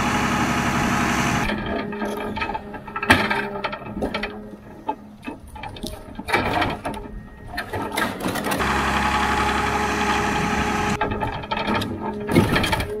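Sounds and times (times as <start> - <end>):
diesel engine running: 0.0 - 3.6, 7.4 - 12.7
crane hydraulics: 0.0 - 13.0
logs knocking and clattering: 1.5 - 8.6, 11.0 - 13.0.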